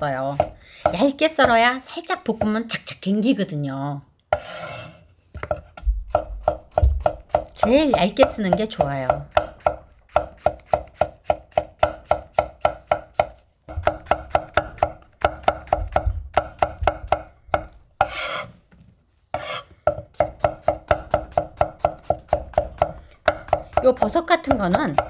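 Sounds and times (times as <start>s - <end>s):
knife slicing on wooden board: 4.3s - 5.0s, 18.0s - 18.6s, 19.4s - 19.7s.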